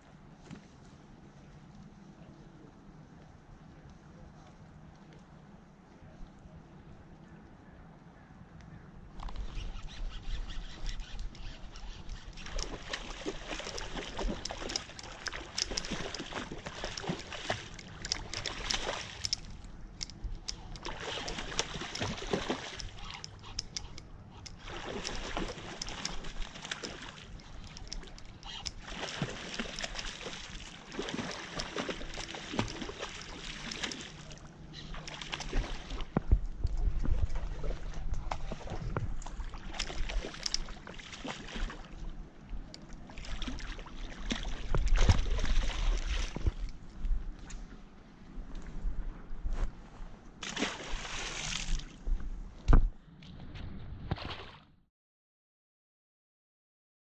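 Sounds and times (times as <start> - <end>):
fish splashing and thrashing: 9.2 - 41.9, 43.1 - 46.7, 50.4 - 52.0.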